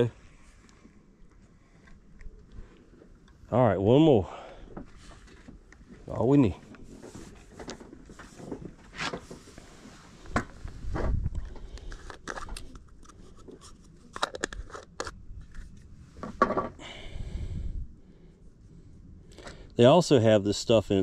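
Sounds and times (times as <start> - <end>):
handling clicks and scrapes: 6.6 - 16.5.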